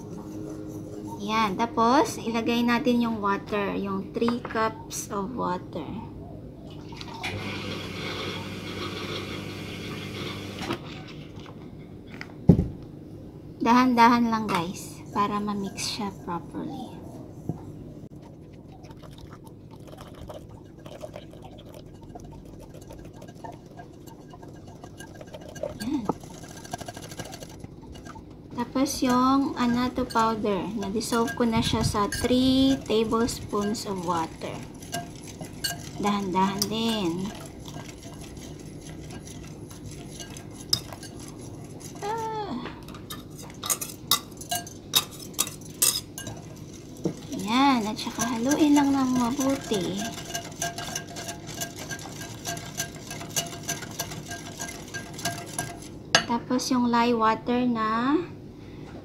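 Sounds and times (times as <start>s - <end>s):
whisk scraping glass bowl: 0.0s - 2.3s, 18.2s - 42.4s, 43.1s - 56.0s
water pouring: 18.2s - 28.2s.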